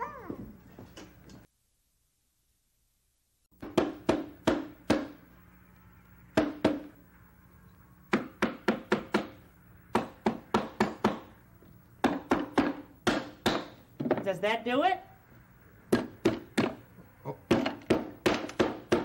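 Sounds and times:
hammer knocking nails into wood: 8.1s - 11.3s, 12.0s - 14.2s, 15.9s - 16.8s, 17.5s - 19.0s.

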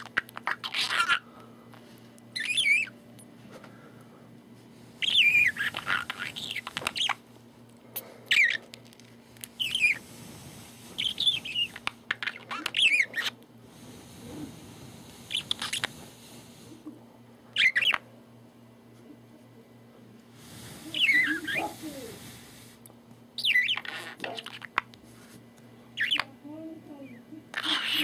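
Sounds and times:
budgerigar chirping and clicking: 0.0s - 1.2s, 2.4s - 3.0s, 5.0s - 7.2s, 11.0s - 13.4s, 15.3s - 16.0s, 17.6s - 18.0s, 23.4s - 24.9s, 26.0s - 26.3s.

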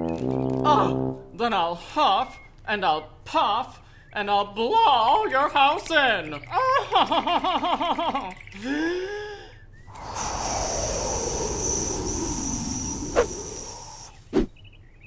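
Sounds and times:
comic voice huffing and puffing: 0.6s - 1.2s
wind gust whoosh: 9.9s - 14.6s.

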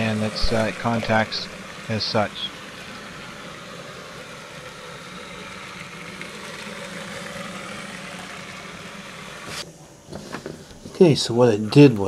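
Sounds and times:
toy train motor whirring: 0.0s - 9.6s.

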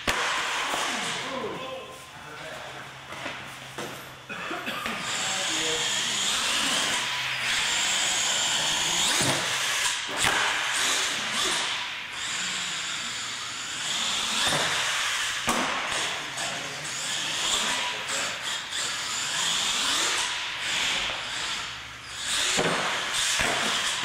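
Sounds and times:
toy truck electric motor whining: 5.0s - 15.5s, 16.1s - 24.0s.

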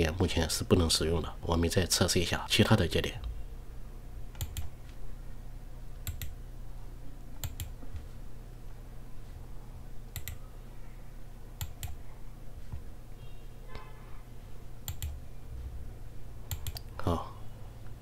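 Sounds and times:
steady low hum: 0.0s - 18.0s
computer mouse clicks: 4.3s - 5.0s, 6.0s - 6.4s, 7.4s - 8.1s, 10.1s - 10.4s, 11.6s - 12.0s, 14.8s - 15.2s, 16.5s - 16.9s.

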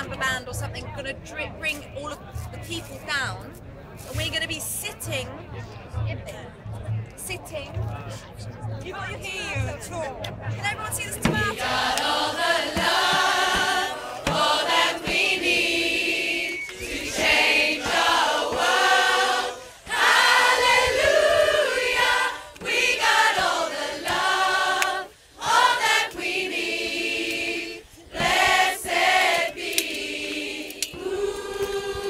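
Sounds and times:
women's choir singing a cappella: 11.0s - 32.0s.

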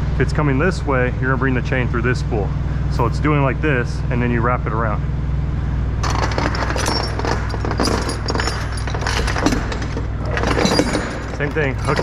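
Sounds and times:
steady low hum: 0.0s - 12.0s
metal chains clinking and rattling: 6.0s - 12.0s.

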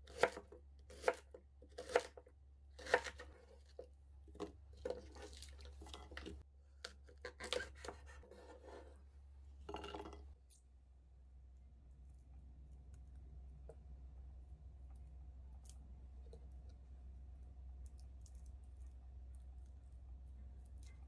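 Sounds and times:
low steady hum: 8.8s - 21.0s.

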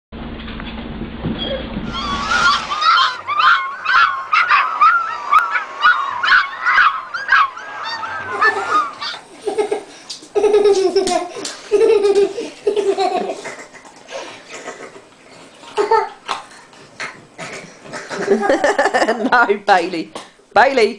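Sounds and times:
puppies yelping and whining: 1.4s - 10.0s
toddler laughing and squealing: 1.4s - 13.4s.

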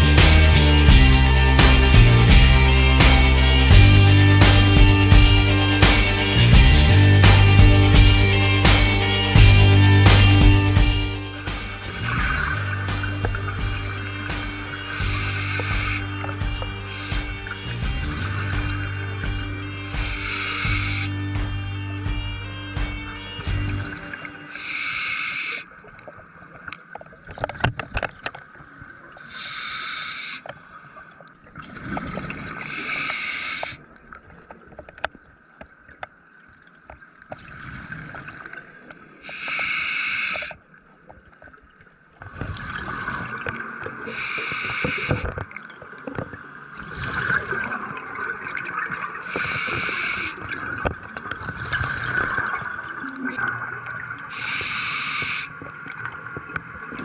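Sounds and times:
diver exhaling bubbles: 11.8s - 21.2s, 46.8s - 55.8s
faint knocks and gurgling: 26.0s - 29.0s, 41.0s - 44.0s, 44.8s - 54.1s.

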